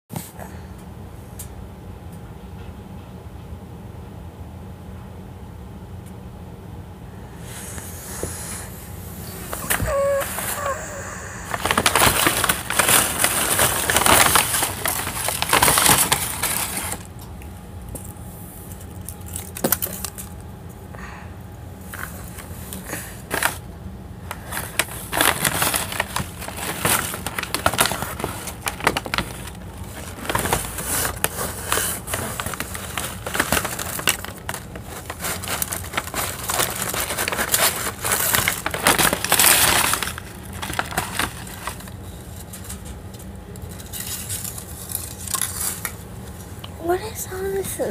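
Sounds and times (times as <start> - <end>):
wrappers and packaging crinkling: 9.2 - 21.1, 21.8 - 47.9.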